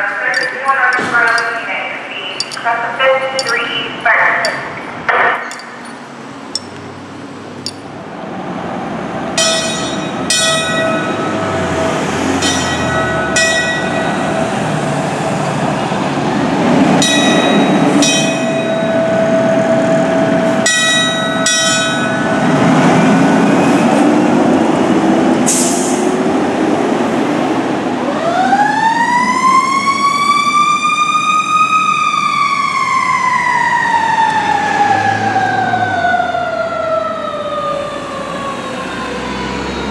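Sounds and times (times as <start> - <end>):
fire engine bell ringing: 0.2 - 6.8, 9.4 - 14.7, 17.0 - 22.6.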